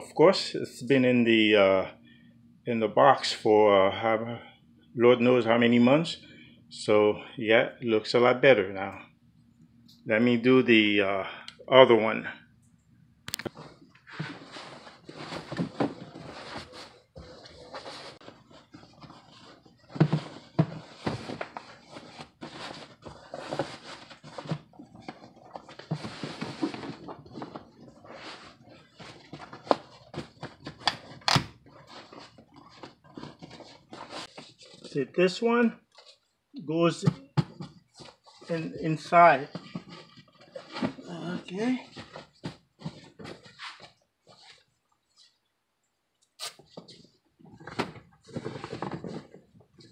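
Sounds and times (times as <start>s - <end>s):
bumps and scrapes: 13.5s - 35.0s, 37.0s - 45.3s, 46.6s - 49.9s.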